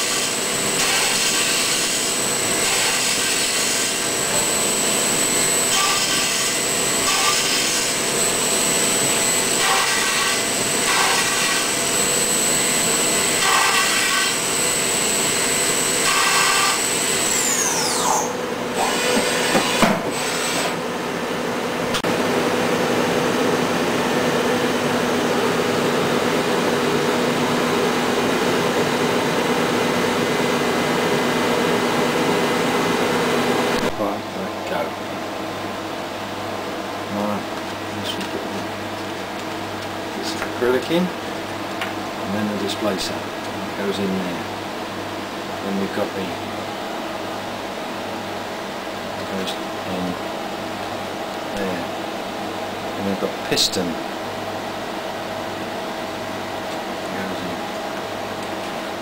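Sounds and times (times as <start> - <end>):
milling spindle whine: 0.0 - 21.9
steady machine hum: 0.0 - 59.0.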